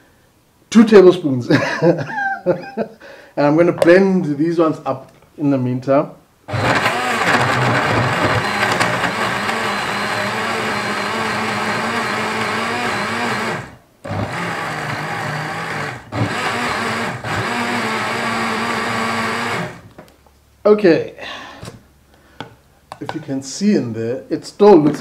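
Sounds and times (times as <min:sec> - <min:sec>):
blender chopping ingredients: 0:06.5 - 0:19.8.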